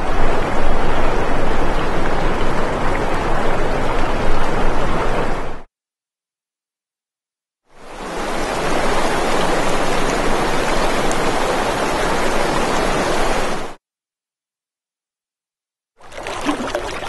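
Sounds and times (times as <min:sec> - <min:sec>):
steady rushing noise: 0:00.0 - 0:05.7.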